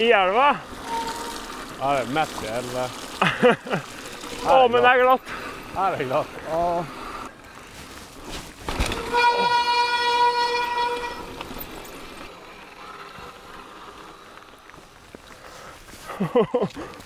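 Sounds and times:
bike riding noise: 0.0s - 17.0s
bike disc brake squealing: 0.8s - 1.6s.

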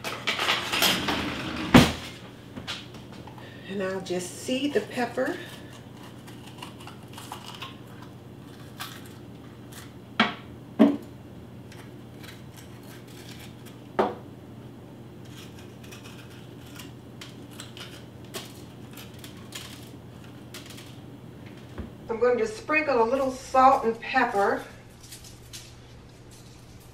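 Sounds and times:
low steady hum: 0.0s - 26.9s
crackling handling of pepper: 4.5s - 10.0s, 11.0s - 14.0s, 15.1s - 21.8s, 23.1s - 26.9s.

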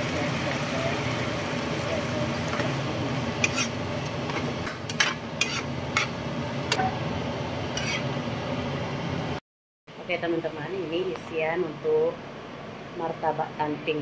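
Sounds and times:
spatula scraping frying pan: 3.4s - 6.2s, 7.7s - 8.1s.

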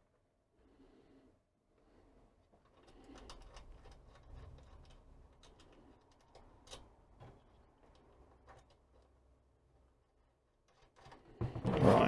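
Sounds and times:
clicks and scrapes of nut turning: 2.6s - 9.2s.

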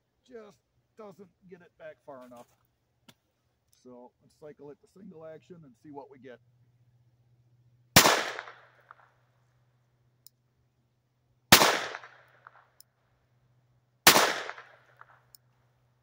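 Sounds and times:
pistol shots with echo: 8.0s - 9.1s, 11.5s - 12.8s, 14.0s - 15.4s.

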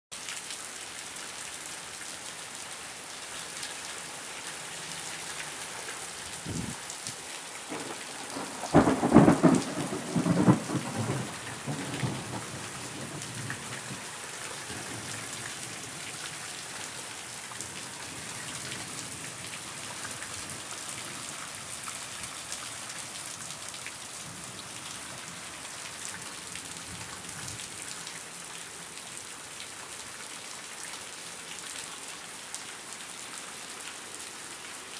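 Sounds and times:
heavy rain on grass and pavement: 0.1s - 34.9s
thunderclap rumbling: 7.7s - 13.2s.

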